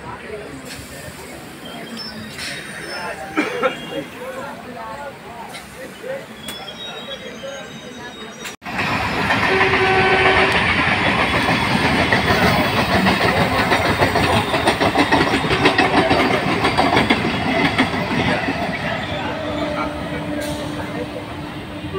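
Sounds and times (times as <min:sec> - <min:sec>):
train wheels rolling clickety-clack: 0:08.4 - 0:21.0.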